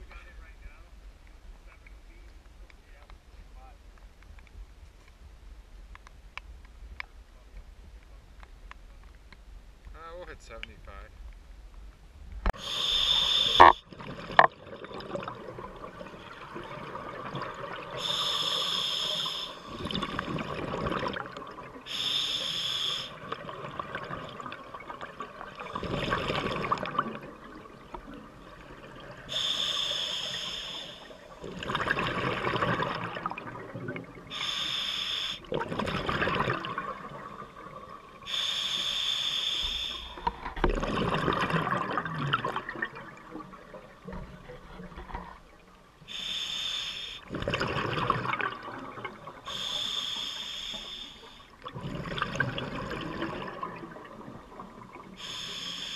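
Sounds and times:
regulator inhale hiss: 12.6s - 13.8s, 18.0s - 19.7s, 21.9s - 23.2s, 29.3s - 31.2s, 34.3s - 35.5s, 38.3s - 40.3s, 46.1s - 47.3s, 49.5s - 51.5s, 55.2s - 55.9s
exhaled bubbles rushing: 13.4s - 18.1s, 19.6s - 21.9s, 23.2s - 29.4s, 31.2s - 34.3s, 35.4s - 38.3s, 40.4s - 45.0s, 47.3s - 49.5s, 51.7s - 55.2s.

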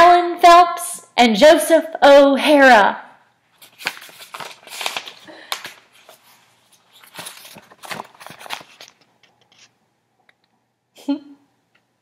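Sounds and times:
book pages rustling: 3.5s - 9.8s.

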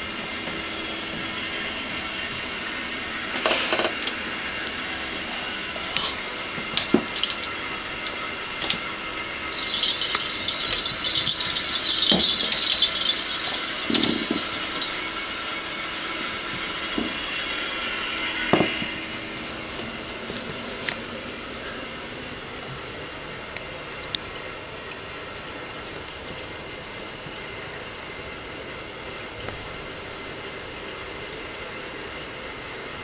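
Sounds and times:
jingle ball bell rattling: 9.4s - 15.3s.

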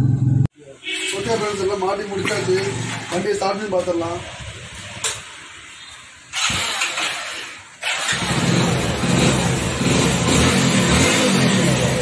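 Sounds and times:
motorcycle engine running: 0.0s - 0.5s, 8.0s - 12.0s
motorcycle engine cranking: 6.3s - 12.0s.

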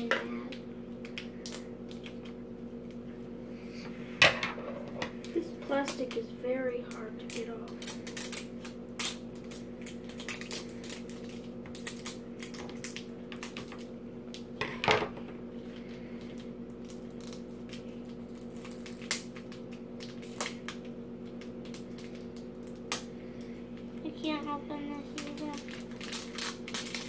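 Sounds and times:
steady background hum: 0.0s - 27.0s
plastic packaging crinkling: 6.8s - 14.4s, 15.6s - 27.0s.

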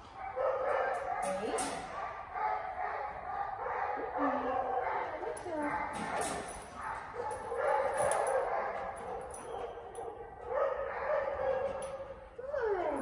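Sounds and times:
dog whining: 12.4s - 13.0s.

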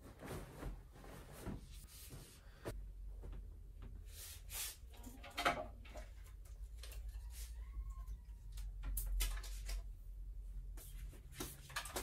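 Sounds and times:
bedding rustling: 0.0s - 4.0s.

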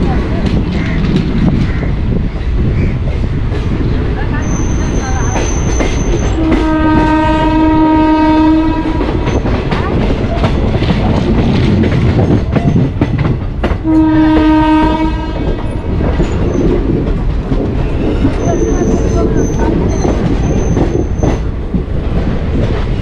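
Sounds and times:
train clattering over rail joints: 0.0s - 23.0s
train horn blasts: 6.4s - 9.3s, 13.8s - 15.7s.

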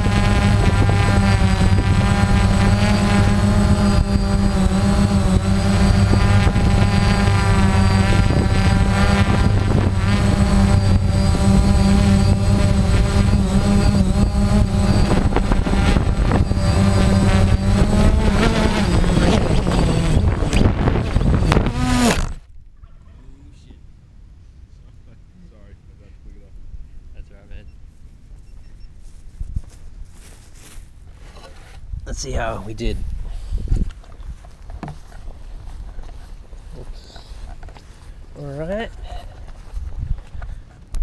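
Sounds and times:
drone propellers whining: 0.0s - 22.5s.

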